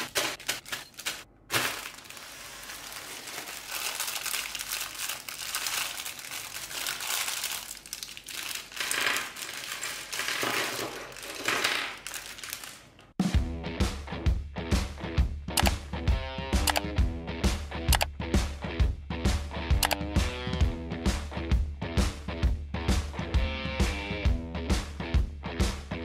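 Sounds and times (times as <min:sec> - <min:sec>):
plastic bag crinkling: 0:00.0 - 0:13.2.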